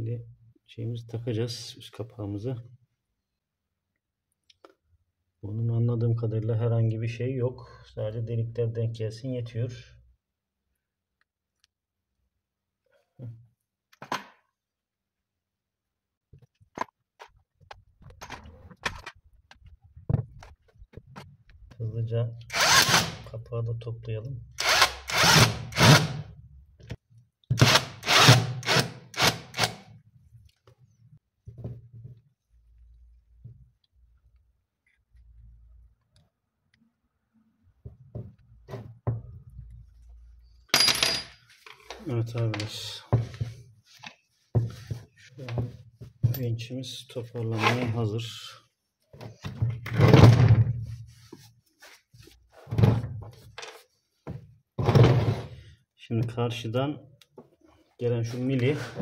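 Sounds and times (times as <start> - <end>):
cordless drill driving screws: 22.5 - 23.2, 24.6 - 26.2, 27.6 - 29.8.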